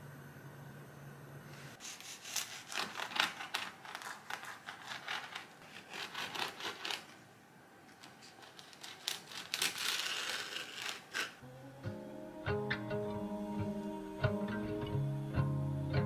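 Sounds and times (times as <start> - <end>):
low steady hum: 0.0 - 1.8, 11.3 - 16.0
crinkling and scraping: 7.9 - 11.4.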